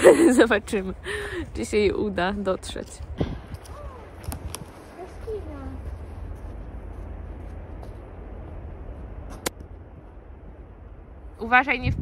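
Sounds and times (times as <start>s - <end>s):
wind buffeting microphone: 0.0s - 12.0s
faint footsteps on sandy path: 0.1s - 11.3s.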